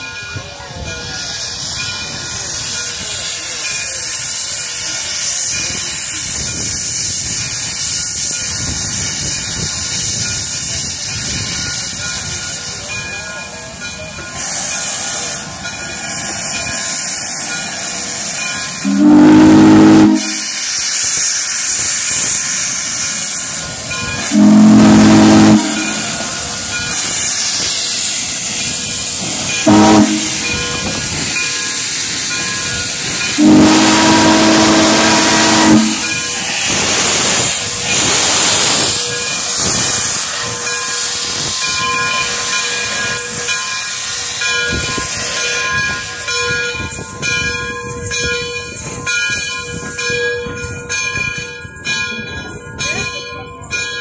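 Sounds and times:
steam hissing from cylinder cocks: 0.1 - 52.0
steam engine exhaust blasts: 14.3 - 46.1
steam locomotive whistle: 17.9 - 23.3, 24.2 - 28.4, 29.1 - 41.5.

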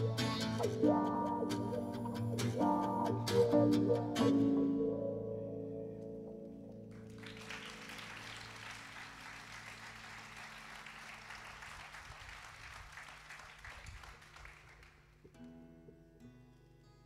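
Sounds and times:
low musical notes ringing: 0.0 - 7.2
audience applauding: 6.9 - 15.2.

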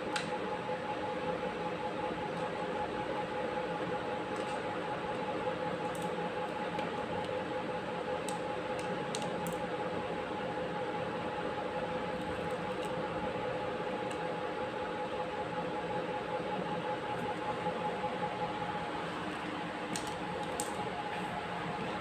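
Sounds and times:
machine hum with held tones: 0.0 - 22.0.

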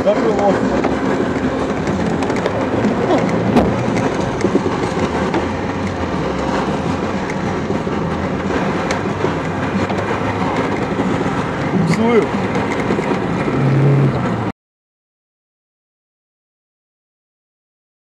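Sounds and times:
body rattles and knocks: 0.0 - 14.5
engine and road noise: 0.0 - 14.6.

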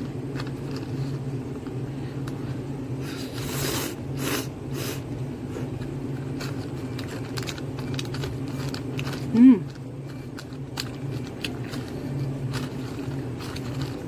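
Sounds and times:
steady low hum: 0.0 - 14.0
person slurping noodles: 3.0 - 5.0.

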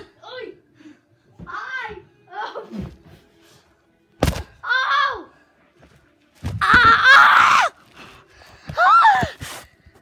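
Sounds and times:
boy screaming: 4.6 - 5.3, 6.6 - 7.8, 8.8 - 9.4
boy crying out: 8.8 - 9.4.

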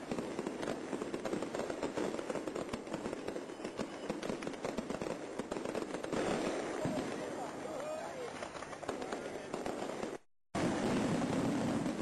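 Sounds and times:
fireworks crackling: 0.0 - 12.0.

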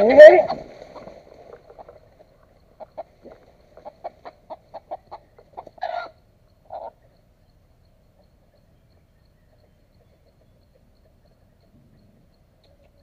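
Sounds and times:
rooster clucking: 0.0 - 7.0
rooster squawks: 5.8 - 7.0.

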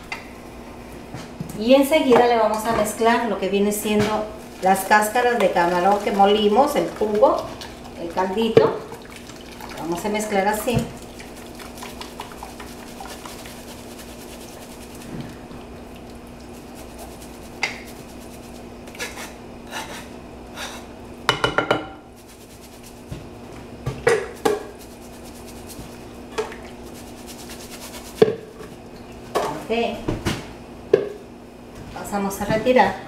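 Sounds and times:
steady low hum: 0.0 - 33.0
utensil scraping wire mesh strainer: 10.1 - 15.3, 24.4 - 25.9, 26.9 - 28.3.

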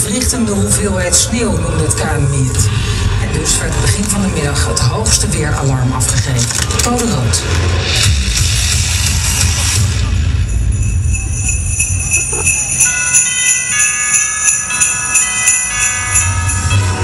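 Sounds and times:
sleigh bells shaken: 10.1 - 17.0.

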